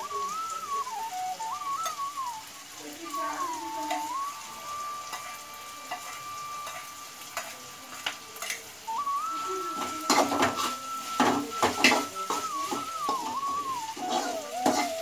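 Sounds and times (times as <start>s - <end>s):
thin whistling tone: 0.0s - 7.2s, 8.9s - 15.0s
food sizzling in frying pan: 0.0s - 15.0s
metal spoon scraping pan: 5.0s - 8.8s, 9.8s - 15.0s.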